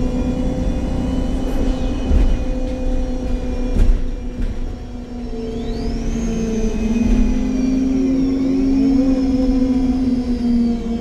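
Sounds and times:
bus engine hum: 0.0 - 11.0
high whine: 0.0 - 11.0.

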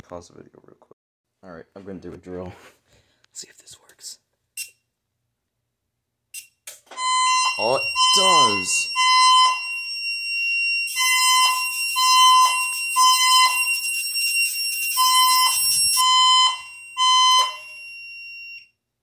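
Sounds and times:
fire alarm horn beeps: 6.4 - 18.7
steady high-pitched tones: 7.2 - 9.7.

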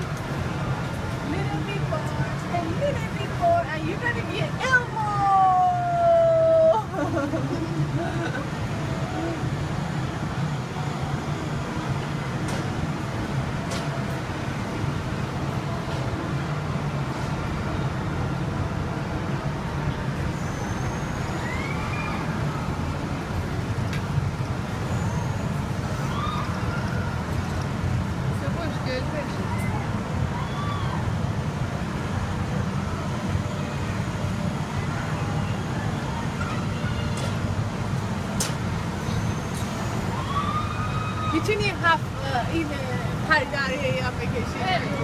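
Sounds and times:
faint voices: 32.8 - 40.6.

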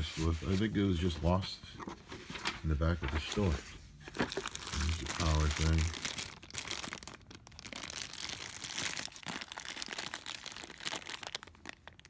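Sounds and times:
plastic bag crinkling: 4.1 - 12.0.

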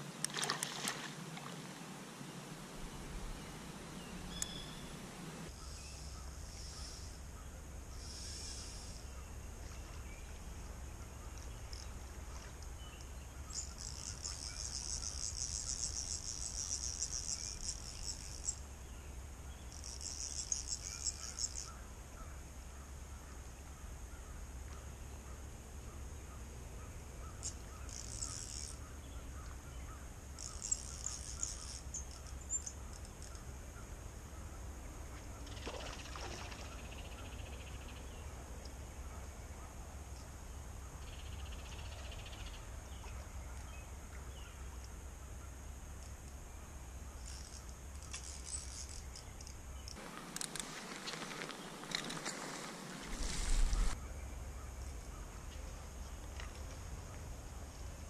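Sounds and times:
buzzing insect trills: 13.5 - 18.6, 47.2 - 54.0.

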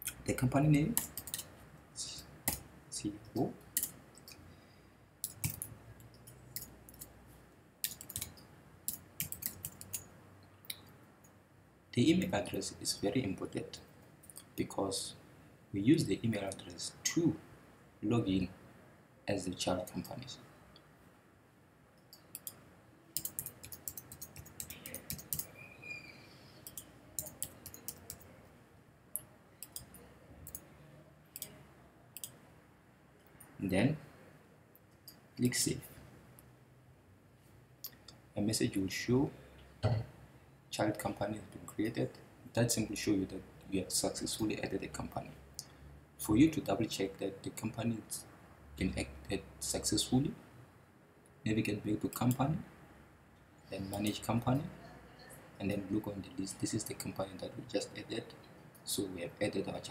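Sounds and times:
keyboard typing: 0.9 - 1.5, 2.2 - 2.7, 5.2 - 7.1, 7.8 - 10.1, 22.1 - 25.6, 26.6 - 28.4, 29.1 - 30.7.

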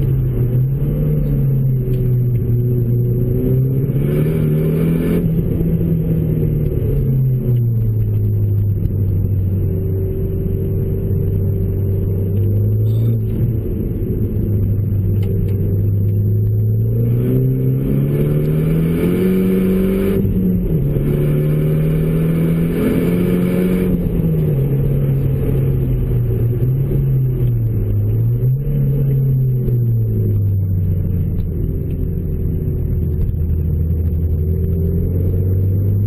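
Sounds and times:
car engine through exhaust: 0.0 - 36.0.

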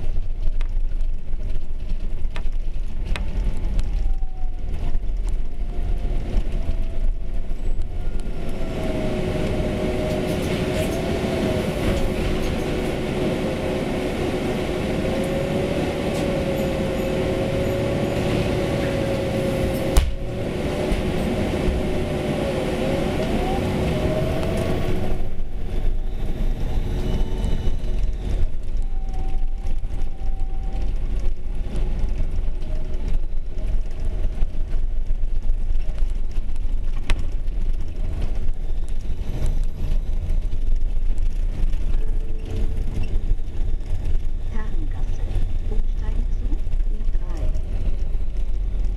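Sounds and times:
bus engine rumble: 0.0 - 48.9
rattles over cobblestones: 0.0 - 48.9
whining tone: 3.0 - 34.5.

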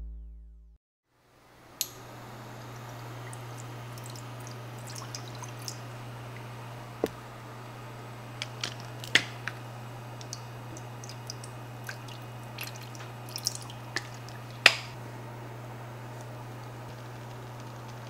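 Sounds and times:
steady low hum: 0.0 - 18.0
liquid pouring and dripping: 2.7 - 6.5, 10.2 - 14.9.

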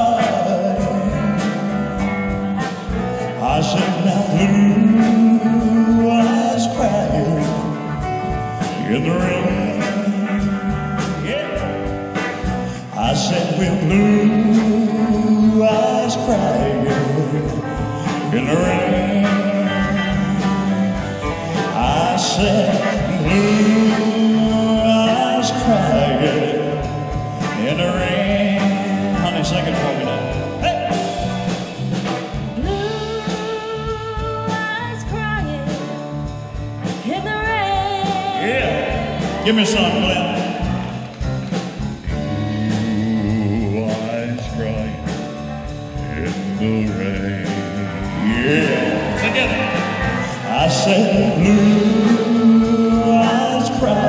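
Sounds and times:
man singing: 0.0 - 34.1, 36.8 - 41.2, 42.1 - 54.0
country ballad band: 0.0 - 54.0
drum beats: 0.0 - 54.0.

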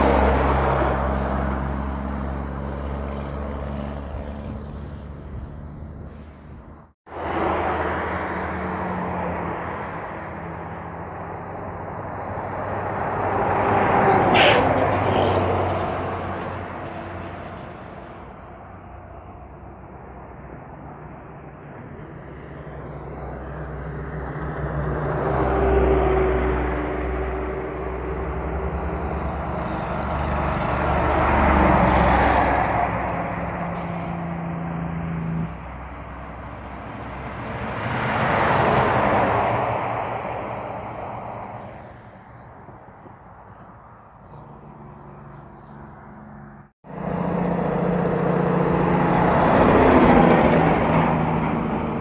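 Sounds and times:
diesel trucks passing: 0.0 - 52.0.

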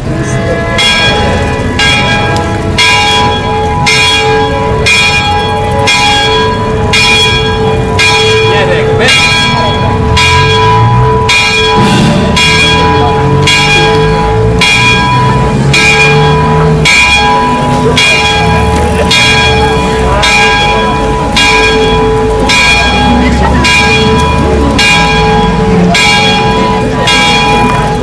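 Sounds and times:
church bell tolling: 0.0 - 28.0.

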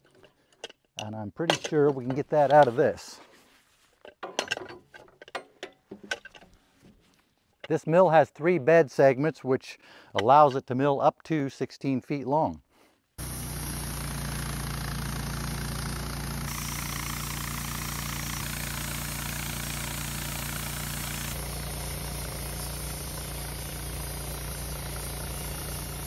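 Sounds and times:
hiss: 13.2 - 26.0
sawmill engine running: 13.2 - 26.0.

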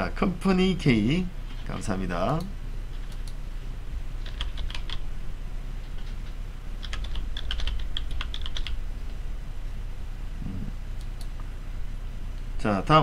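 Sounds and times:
typing on computer keyboard: 4.2 - 5.0, 6.8 - 8.8.

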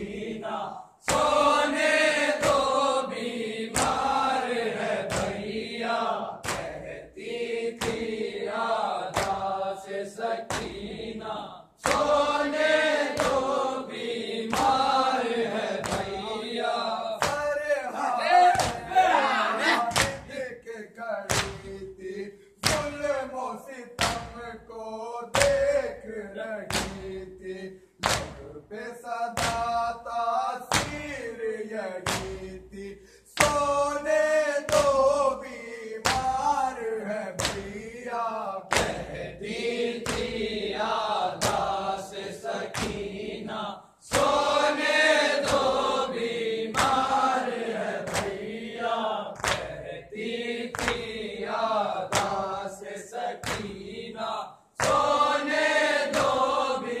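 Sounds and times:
men chanting together: 0.0 - 57.0
hands beating on chests: 18.4 - 19.0, 19.9 - 20.4, 24.0 - 24.4.

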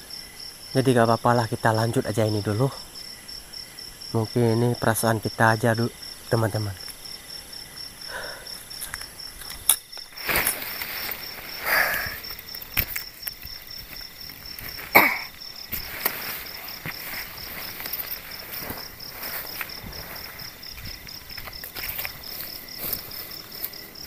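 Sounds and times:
crickets chirping: 0.0 - 24.0
nylon tent rustling and knocking: 10.1 - 24.0.

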